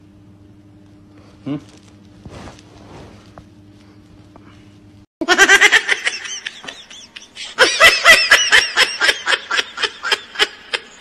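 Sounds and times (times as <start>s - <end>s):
person laughing hard: 5.2s - 11.0s.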